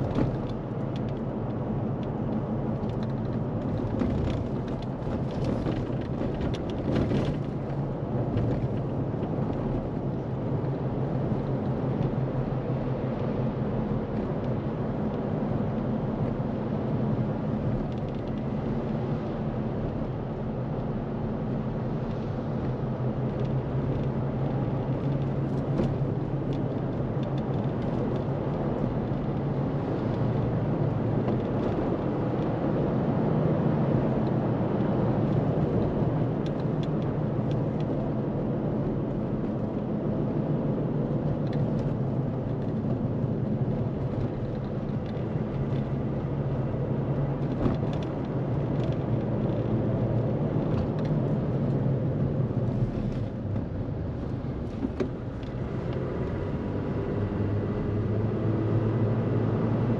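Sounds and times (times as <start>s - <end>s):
road noise: 0.0s - 59.9s
vehicle engine drone: 0.0s - 59.9s.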